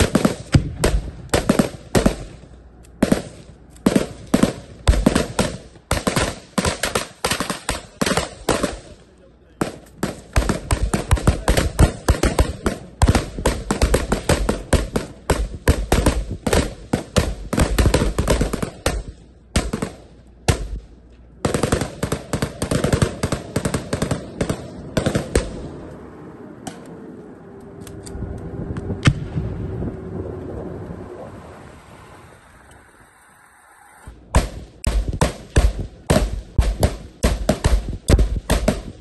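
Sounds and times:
rifle shots: 0.0s - 9.0s, 9.6s - 25.8s, 34.2s - 39.0s.

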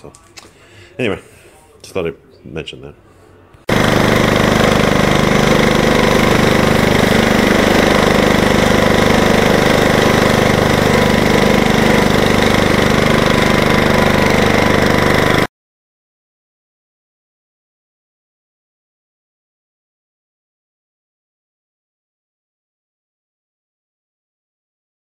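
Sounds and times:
garden tractor engine running: 3.7s - 15.5s.

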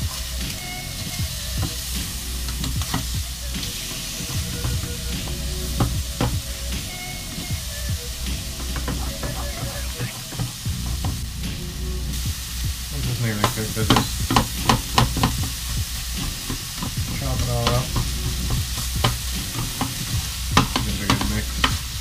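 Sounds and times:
fish sizzling in frying pan: 0.0s - 22.0s
spatula scraping and knocking pan: 0.0s - 22.0s.

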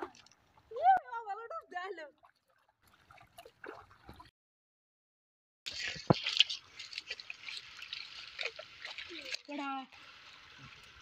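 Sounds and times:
water splashing and dripping: 0.0s - 4.3s, 5.7s - 11.0s
sharp water splash: 2.2s - 4.3s, 5.7s - 11.0s.

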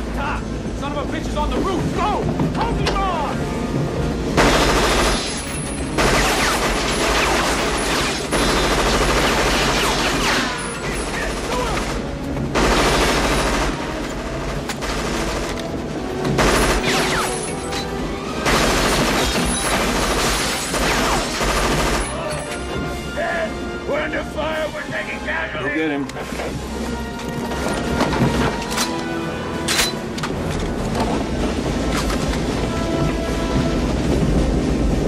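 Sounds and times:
automatic gunfire bursts: 4.4s - 12.0s, 12.6s - 13.9s.

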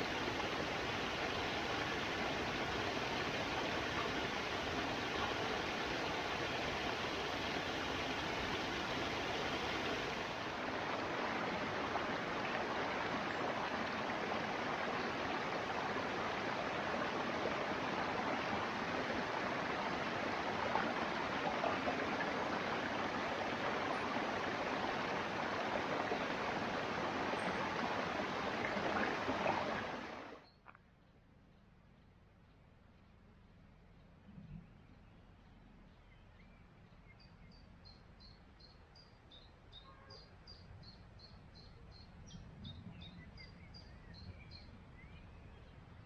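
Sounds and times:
stream rushing over rocks: 0.0s - 30.4s.

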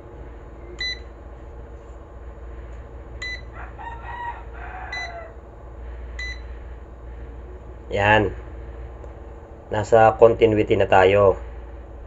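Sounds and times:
short electronic beeps: 0.8s - 1.0s, 6.2s - 6.4s
rooster crowing: 3.2s - 5.5s.

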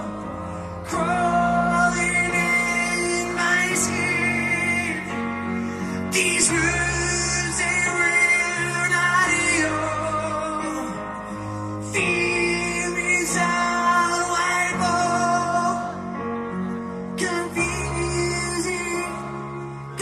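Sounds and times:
man singing long notes: 0.0s - 11.0s, 11.8s - 16.2s
live rock ballad: 0.0s - 20.0s.

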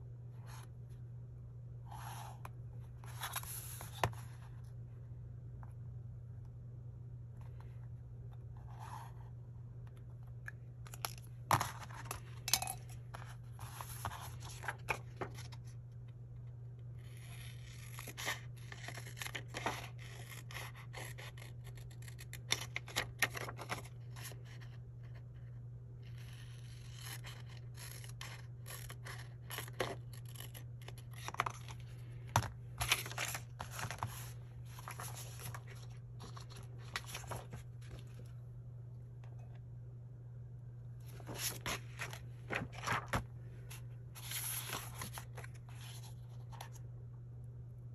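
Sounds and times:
paper rustling on tabletop: 32.8s - 38.2s, 41.0s - 46.6s.

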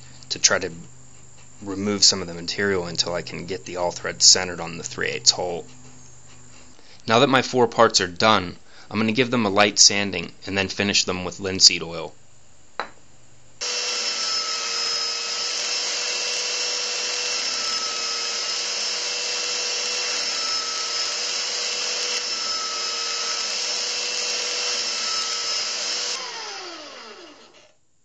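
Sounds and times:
belt sander motor whine: 13.6s - 27.8s.

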